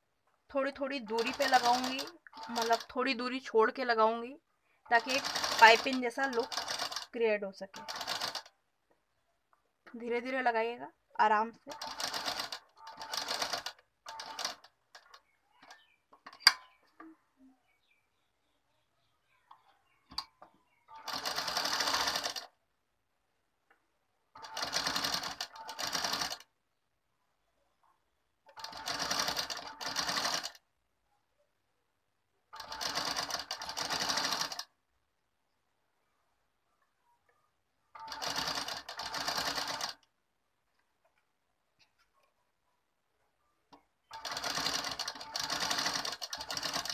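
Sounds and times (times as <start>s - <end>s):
sewing machine stitching: 0.8s - 3.1s, 4.9s - 8.5s, 11.6s - 15.8s, 20.9s - 22.5s, 24.3s - 26.5s, 28.5s - 30.6s, 32.5s - 34.7s, 38.0s - 40.0s, 44.1s - 46.9s.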